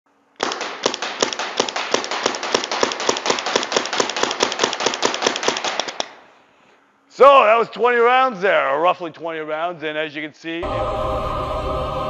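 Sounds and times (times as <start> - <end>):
shot echoes in indoor hall: 0.4 - 3.4
paintball marker firing: 0.4 - 6.3.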